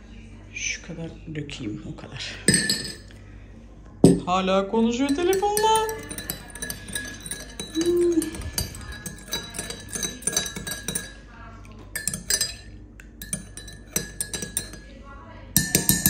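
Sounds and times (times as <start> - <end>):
teaspoon clinking in glass mug: 2.5 - 3.1, 4.0 - 4.3, 5.0 - 14.9, 15.6 - 16.0.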